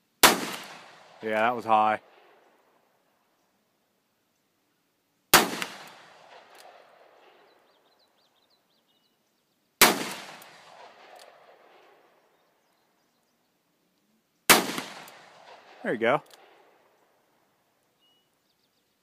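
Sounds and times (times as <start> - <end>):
revolver shots with echo: 14.5 - 15.8.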